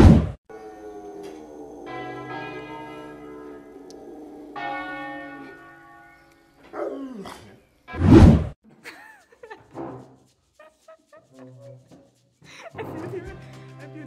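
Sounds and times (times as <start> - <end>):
dog howling: 0.5 - 5.6, 6.6 - 7.6
church bells ringing: 0.5 - 6.7.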